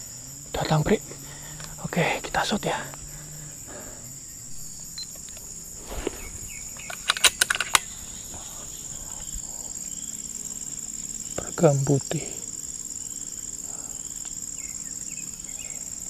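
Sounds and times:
insects chorus: 0.0s - 16.0s
sharp clicks: 4.9s - 8.0s.

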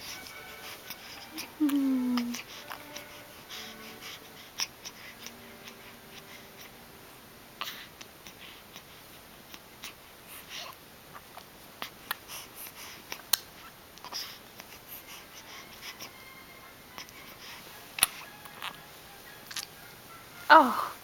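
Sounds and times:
baby breathing and sniffling: 0.0s - 6.8s, 14.0s - 16.2s, 17.0s - 18.2s
baby mouth clicks: 13.1s - 14.1s, 19.5s - 19.7s.

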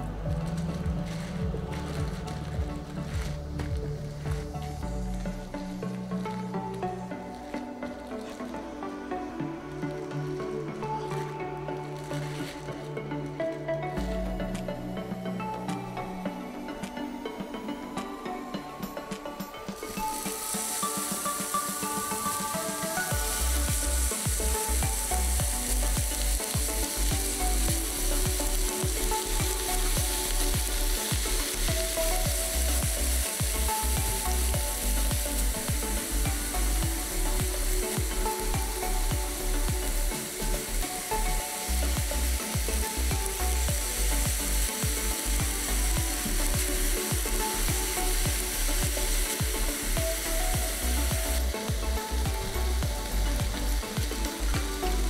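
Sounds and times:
meat sizzling on grill: 19.6s - 55.0s.

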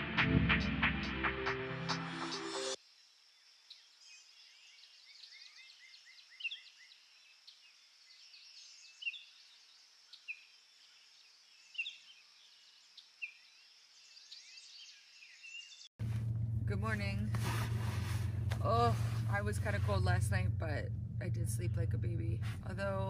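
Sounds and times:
small birds chirping: 3.0s - 15.9s.

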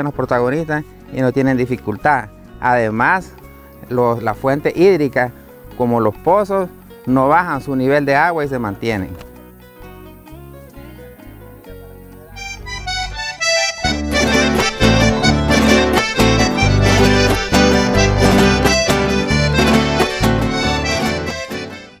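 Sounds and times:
instrumental theme music: 0.0s - 22.0s.

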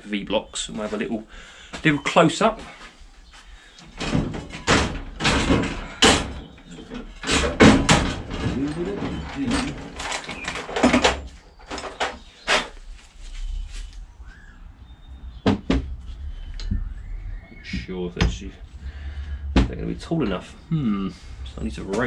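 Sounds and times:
metal tools clattering: 4.0s - 12.8s.

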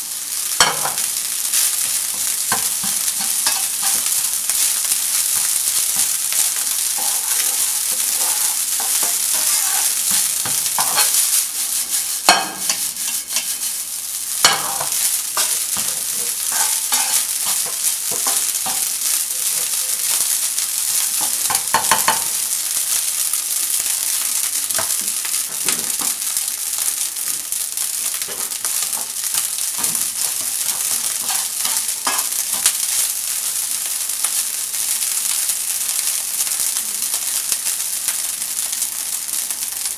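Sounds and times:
rice sizzling in a frying pan: 0.0s - 39.9s
spatula scraping and tapping pan: 0.6s - 13.8s, 14.4s - 19.8s, 21.1s - 22.4s, 28.1s - 33.1s.

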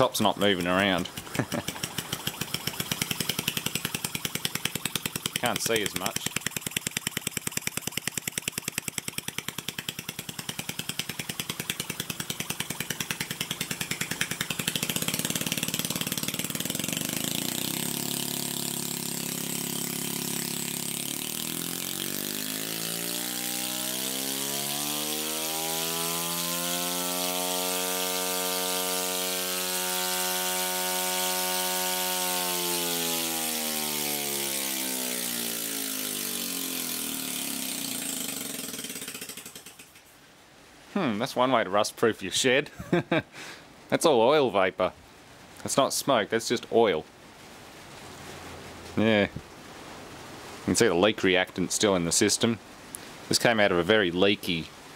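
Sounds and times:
compressor running: 0.0s - 40.1s
fast mechanical rattle: 0.0s - 40.2s.

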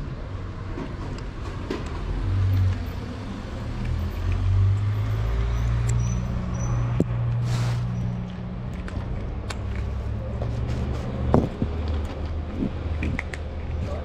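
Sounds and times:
vehicle engine humming: 0.0s - 14.0s
cat crunching dry kibble: 7.4s - 10.3s, 11.0s - 14.0s.

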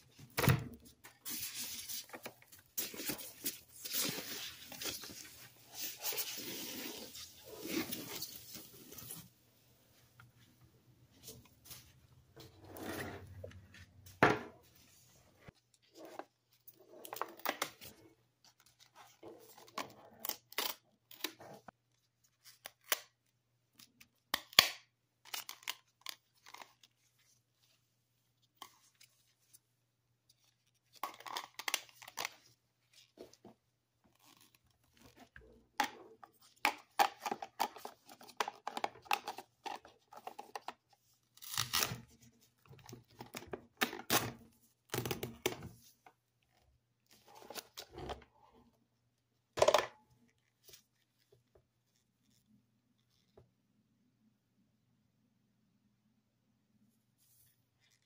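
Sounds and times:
plastic packaging tearing: 41.4s - 42.1s.

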